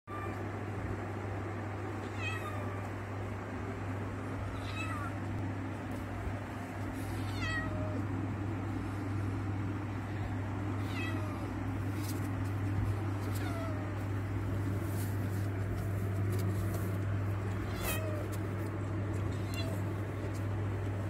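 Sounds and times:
steady low hum: 0:00.1 - 0:21.0
cat meowing: 0:02.0 - 0:02.9, 0:04.5 - 0:05.2, 0:07.2 - 0:08.0, 0:10.8 - 0:11.6, 0:13.2 - 0:14.0, 0:17.5 - 0:18.4, 0:19.2 - 0:20.1.

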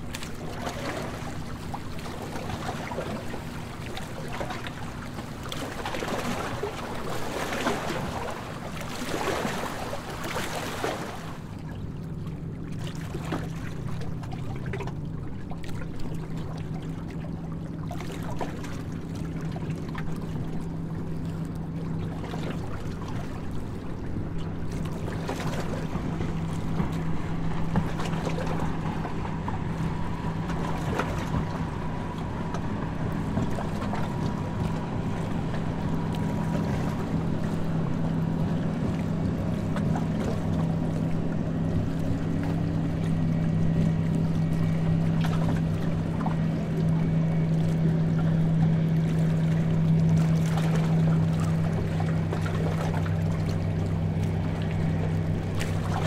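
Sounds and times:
water rushing: 0:00.0 - 0:11.7
boat engine humming: 0:00.0 - 0:56.0
wind: 0:00.0 - 0:56.0.

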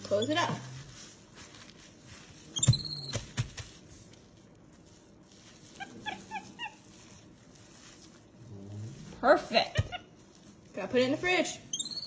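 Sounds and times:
monkey chirps: 0:02.6 - 0:03.2, 0:11.7 - 0:12.0.

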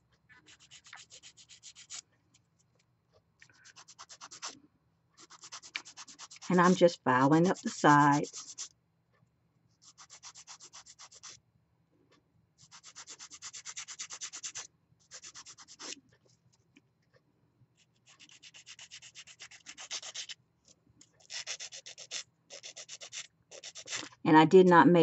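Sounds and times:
nail file rasping on nails: 0:00.5 - 0:02.0, 0:03.5 - 0:04.6, 0:05.2 - 0:08.7, 0:09.8 - 0:11.4, 0:12.6 - 0:16.0, 0:17.9 - 0:20.4, 0:21.2 - 0:24.1.

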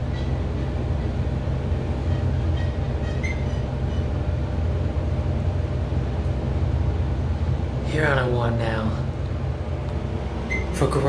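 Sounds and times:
elevator car low rumble: 0:00.0 - 0:11.0
faint high squeaks: 0:02.1 - 0:04.1.

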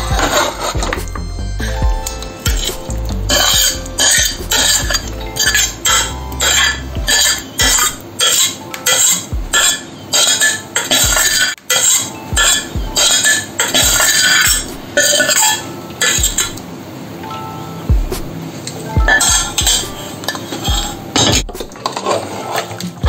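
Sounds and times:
low thuds: 0:00.0 - 0:08.0
metal spoon scraping steel pan: 0:03.3 - 0:16.5.

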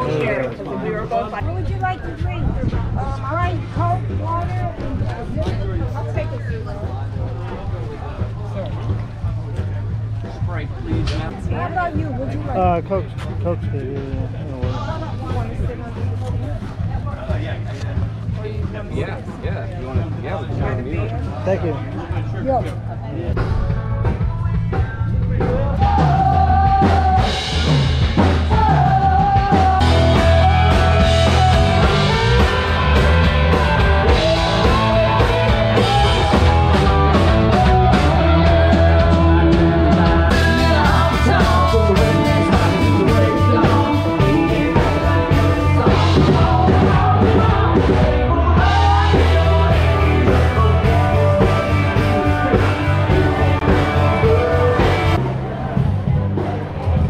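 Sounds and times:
drum kit: 0:22.5 - 0:57.0
person singing: 0:24.7 - 0:27.8, 0:28.5 - 0:55.3
electric guitar: 0:25.8 - 0:55.9.

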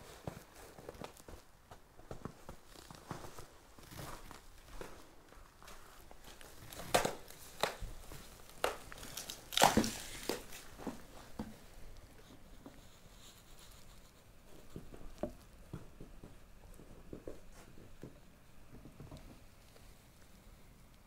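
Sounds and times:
footsteps crunching on ground litter: 0:00.1 - 0:11.5
sharp cracks and crackles: 0:06.2 - 0:10.9.

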